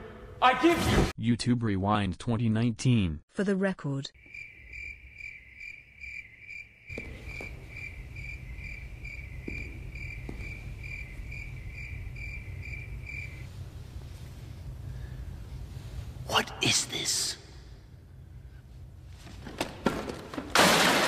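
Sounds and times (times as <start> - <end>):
crickets chirping: 4.2 - 16.3
low steady rumble: 10.6 - 16.3, 17.4 - 19.2.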